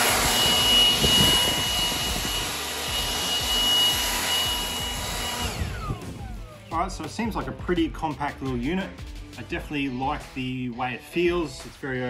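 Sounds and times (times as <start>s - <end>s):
dry leaves blown along ground: 0.0s - 5.8s
leaf blower running: 0.0s - 6.7s.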